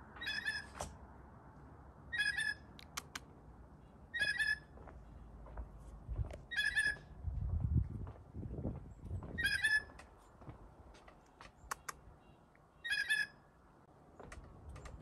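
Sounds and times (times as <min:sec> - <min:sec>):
blue jay calling: 0:00.1 - 0:00.8, 0:02.1 - 0:02.8, 0:04.1 - 0:04.8, 0:06.5 - 0:07.1, 0:09.4 - 0:10.0, 0:11.7 - 0:13.5
sharp clicks: 0:02.8 - 0:03.3, 0:11.2 - 0:12.0.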